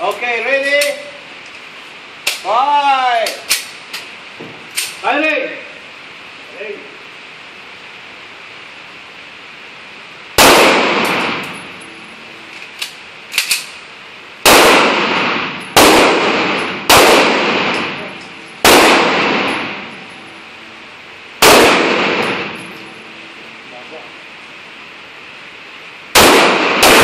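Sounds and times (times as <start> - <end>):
pistol shots echoing indoors: 10.4 - 11.6, 14.4 - 19.9, 21.4 - 22.6, 26.1 - 27.0.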